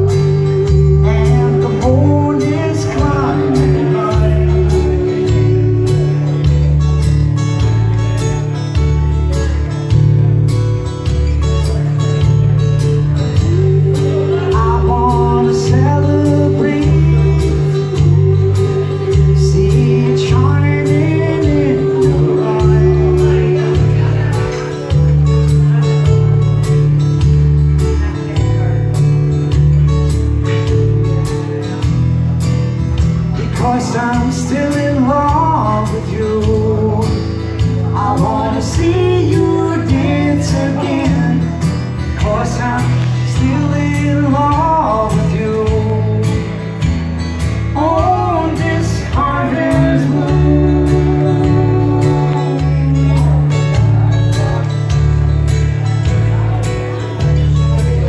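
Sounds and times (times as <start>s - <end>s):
person singing: 0.0s - 7.4s, 12.8s - 25.9s, 33.3s - 46.9s, 47.5s - 55.1s
acoustic guitar strumming: 0.0s - 58.0s
electric bass playing: 0.0s - 58.0s.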